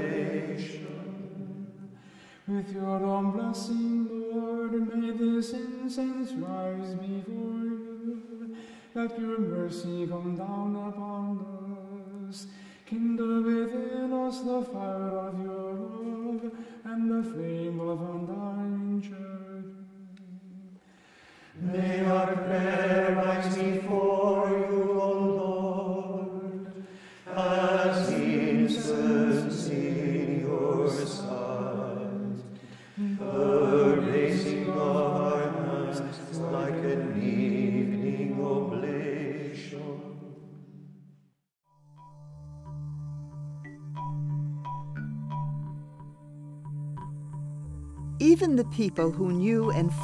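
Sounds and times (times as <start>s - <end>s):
men chanting: 21.6s - 26.2s, 27.3s - 40.1s.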